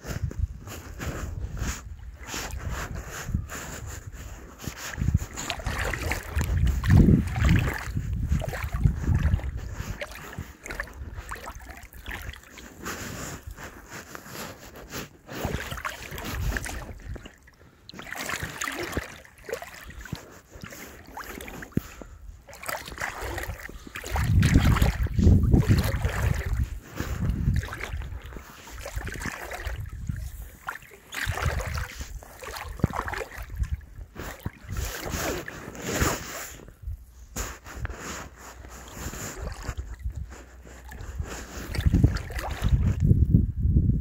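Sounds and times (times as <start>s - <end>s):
wading splashing in shallow water: 0.0s - 43.3s.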